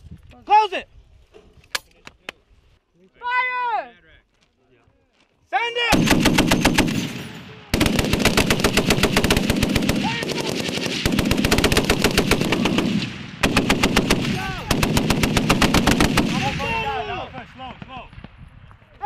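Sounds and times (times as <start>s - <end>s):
heavy machine guns firing bursts: 5.9s - 16.7s.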